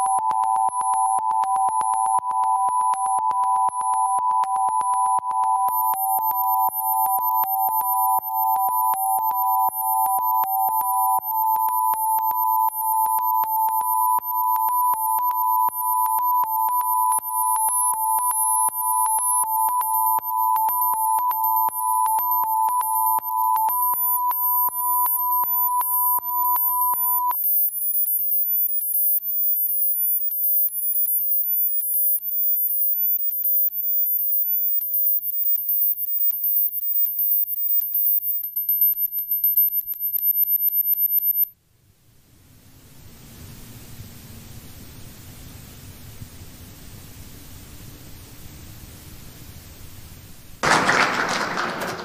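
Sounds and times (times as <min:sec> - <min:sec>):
steady pure sine tones: 0:00.0 - 0:41.5
even clicking pulse: 0:50.6 - 0:52.0.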